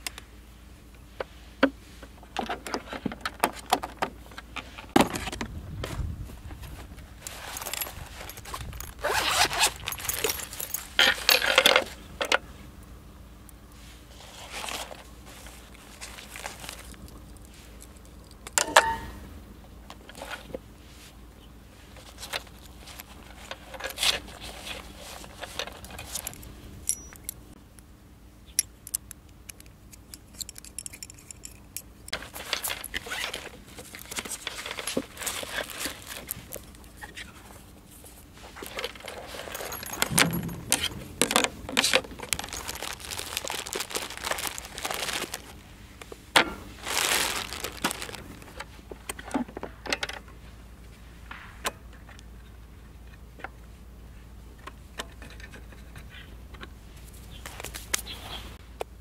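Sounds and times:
fabric rustling: 38.3s - 45.6s, 46.7s - 48.6s.

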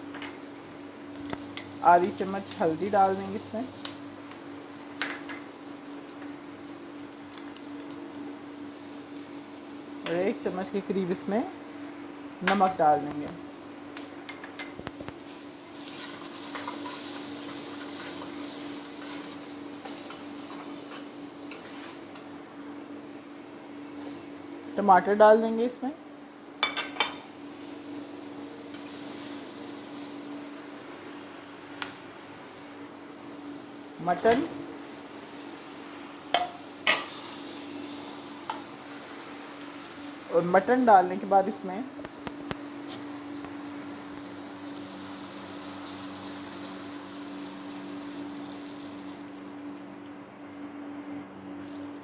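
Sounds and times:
food sizzling in oil: 13.4s - 22.8s, 27.2s - 31.8s, 32.5s - 49.7s
water poured into sizzling pot: 44.6s - 49.5s.

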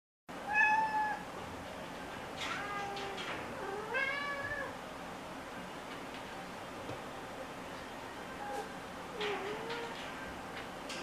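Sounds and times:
cat meowing: 0.5s - 1.2s, 2.4s - 4.8s.

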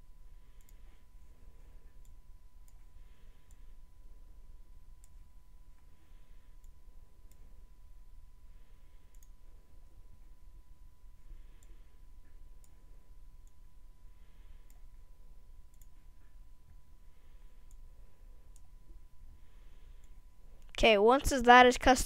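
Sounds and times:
faint steady hum: 0.0s - 22.0s
computer mouse clicks: 0.6s - 0.8s, 1.9s - 3.7s, 5.0s - 5.2s, 6.6s - 7.5s, 9.1s - 9.4s, 11.6s - 11.8s, 14.6s - 14.9s, 15.7s - 16.4s, 17.6s - 17.8s, 18.5s - 18.7s, 19.9s - 20.8s.

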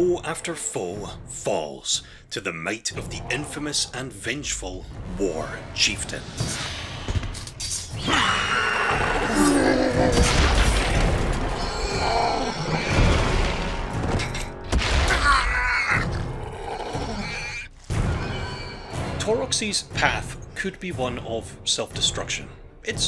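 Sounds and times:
dramatic music: 0.0s - 23.0s
creature growls and roars: 3.0s - 4.6s, 8.0s - 13.8s, 15.0s - 19.1s.

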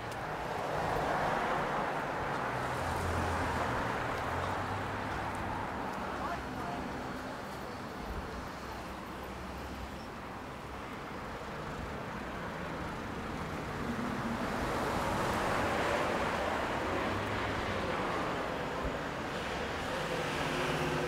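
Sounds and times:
passing vehicle: 12.4s - 21.0s.

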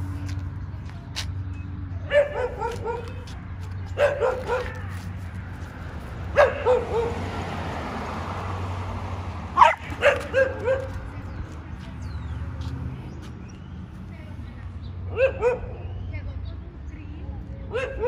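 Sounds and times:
dog barking: 2.1s - 3.3s, 4.0s - 5.0s, 6.3s - 7.2s, 9.6s - 11.1s, 15.1s - 15.9s, 17.7s - 18.0s.

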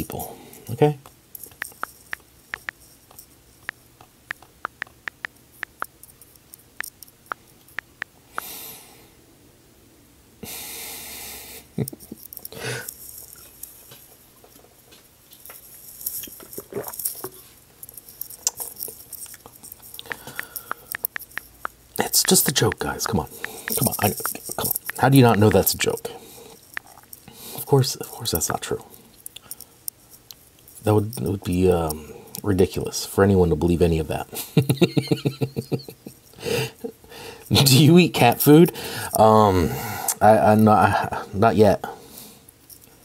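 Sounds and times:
small clicks: 1.0s - 8.5s, 17.8s - 25.8s.

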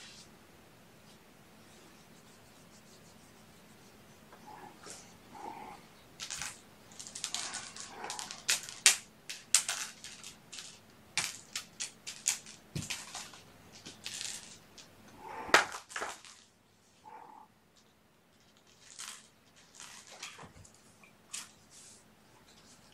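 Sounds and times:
scratchy rustling on blanket: 1.0s - 5.8s
sharp clicks of plastic toys: 6.2s - 14.9s.

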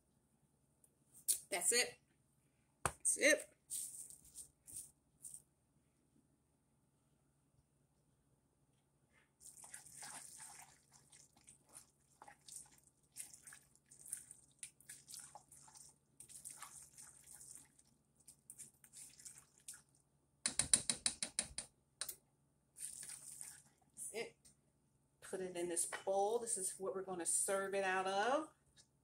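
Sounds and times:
spoon stirring macaroni in saucepan: 9.4s - 22.2s, 22.8s - 24.0s.

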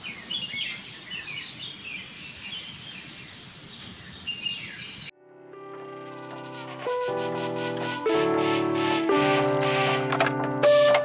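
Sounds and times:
birds chirping: 0.0s - 5.2s.

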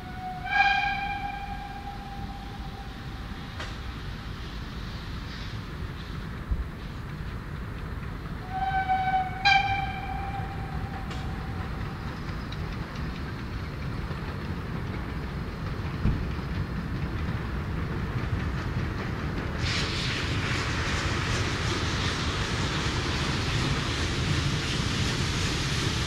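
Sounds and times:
steam locomotive whistle: 0.0s - 3.8s, 8.4s - 12.1s
locomotive rumbling: 0.0s - 26.0s.

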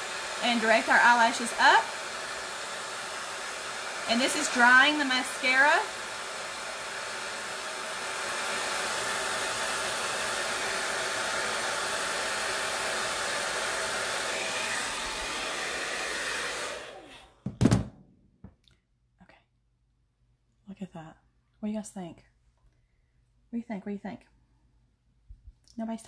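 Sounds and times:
hair dryer running: 0.0s - 17.9s.

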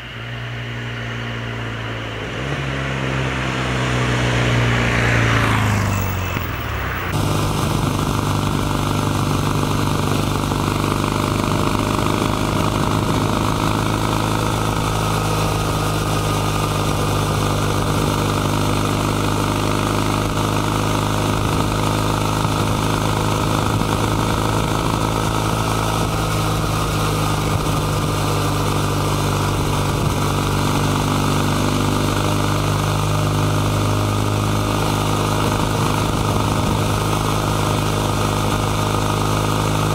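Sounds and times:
vehicle passing by: 0.0s - 8.3s
motorcycle engine cruising: 0.0s - 39.9s
wind and road noise: 0.0s - 39.9s.

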